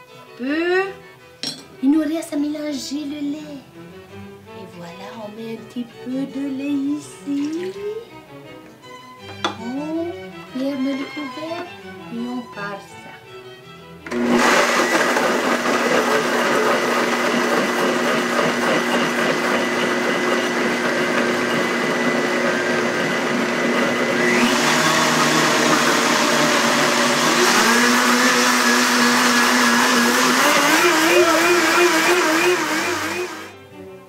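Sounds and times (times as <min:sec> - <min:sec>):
blender running: 0:14.0 - 0:33.6.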